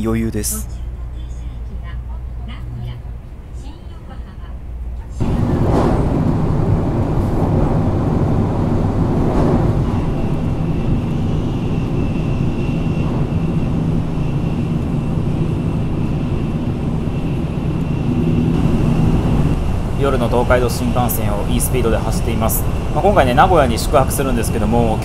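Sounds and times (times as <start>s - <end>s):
train cabin rumble: 0.0s - 25.0s
thin high whine: 9.6s - 25.0s.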